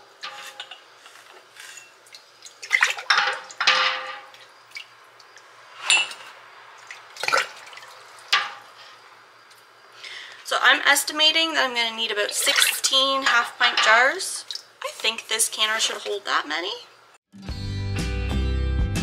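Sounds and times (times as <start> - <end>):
glass jars clinking: 3.0 - 4.5, 5.8 - 6.3.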